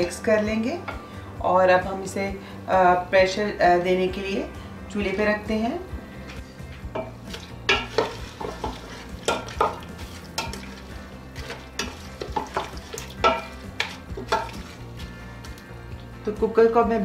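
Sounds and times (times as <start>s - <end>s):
wooden spoon scraping metal pot: 7.0s - 15.1s.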